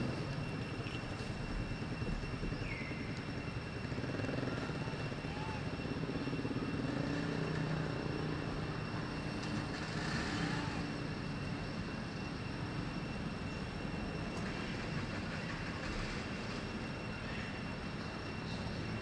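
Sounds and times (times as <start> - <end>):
faint high whine: 0.0 - 19.0.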